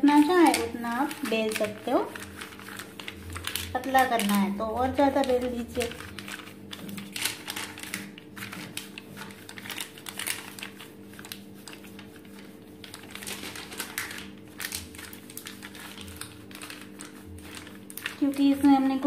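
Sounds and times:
paper crinkling under rolling pin: 0.0 - 19.0
steady low hum: 0.0 - 19.0.

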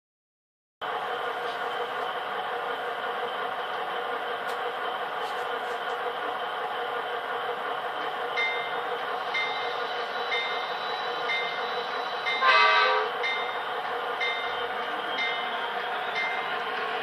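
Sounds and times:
diesel engine sound: 0.8 - 17.0
horn blast: 12.4 - 13.1.

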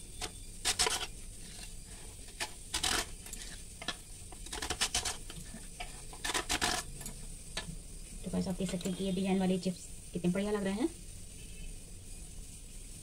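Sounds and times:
potato rasping on slicer blade: 0.7 - 1.8.

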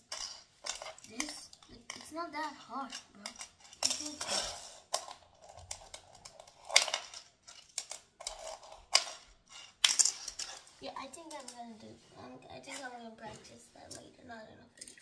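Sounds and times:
fingerboard wheels rolling rattle: 0.0 - 12.0.

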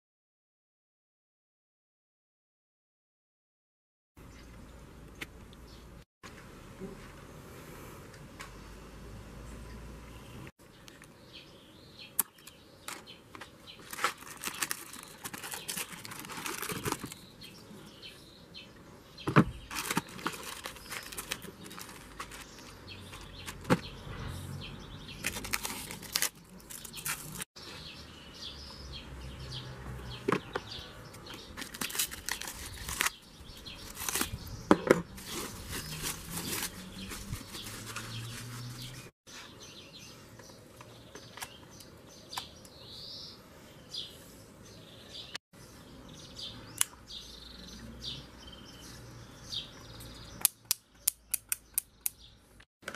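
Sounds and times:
plastic bags crinkling and tearing: 13.8 - 17.2, 19.7 - 23.7, 25.2 - 27.5, 31.6 - 33.2, 33.8 - 34.3.

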